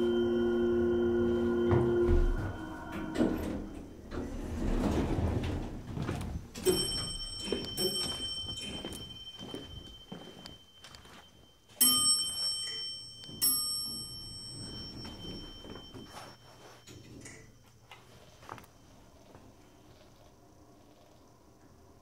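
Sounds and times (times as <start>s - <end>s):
bell ringing: 0.0s - 3.9s, 6.6s - 17.6s.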